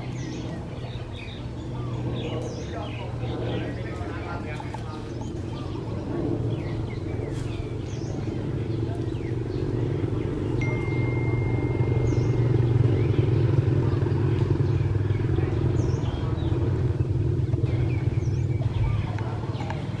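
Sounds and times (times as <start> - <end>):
engine running: 0.0 - 20.0
faint high chirps: 10.5 - 13.4.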